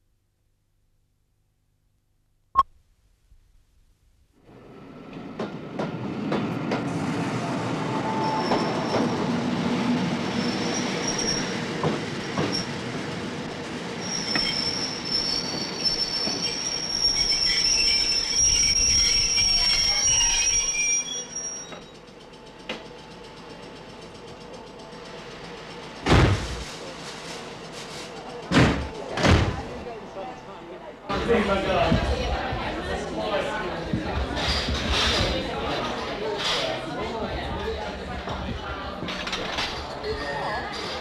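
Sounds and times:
wheel squeals: 8.0 - 9.3, 10.2 - 12.8, 13.9 - 22.1
train rumble: 31.1 - 41.0.

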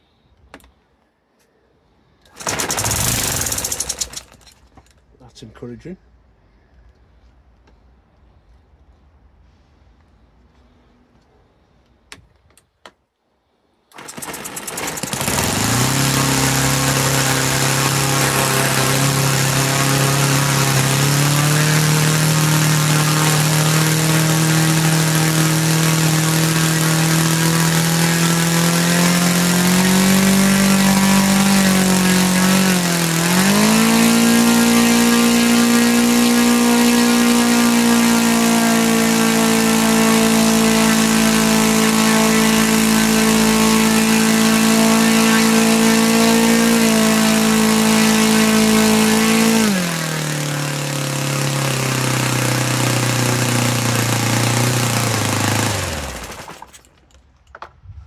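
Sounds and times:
model aircraft engine running: 2.3 - 4.4, 13.9 - 56.7.

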